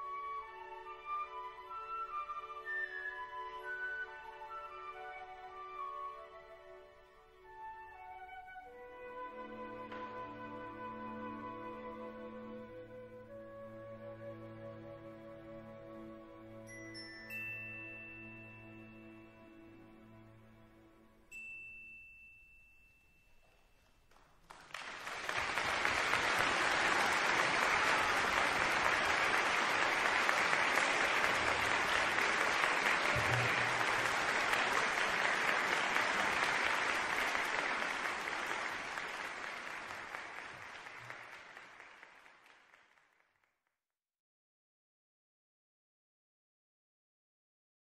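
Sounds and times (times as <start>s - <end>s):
audience applause: 24.1s - 43.4s.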